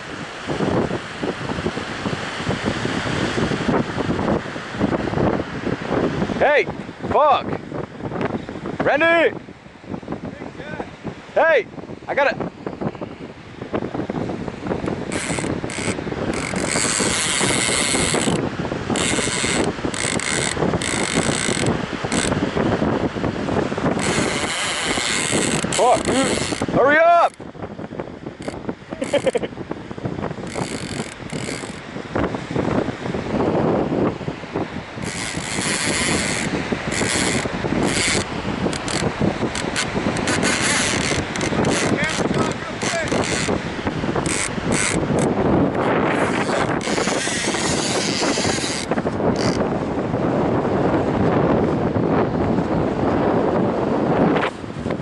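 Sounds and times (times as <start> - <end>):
wind buffeting microphone: 0.0 - 55.0
fishing reel drag screaming: 19.0 - 22.3, 24.0 - 26.6, 35.0 - 39.0, 39.6 - 43.5, 46.2 - 49.6.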